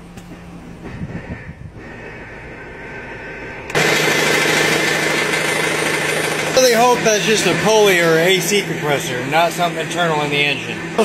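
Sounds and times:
car engine idling: 1.8 - 11.0
rapid metallic engine knock: 3.7 - 8.8.

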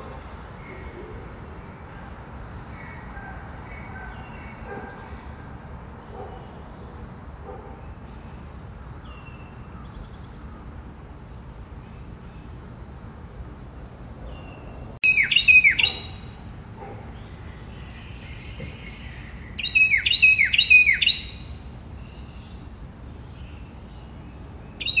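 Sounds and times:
high bird chirps: 15.0 - 16.3, 18.3 - 22.4.

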